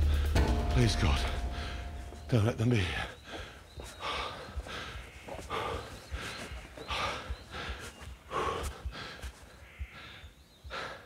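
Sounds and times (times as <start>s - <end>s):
man breathing hard and gasping: 0.0s - 0.4s, 1.6s - 2.0s, 3.1s - 11.0s.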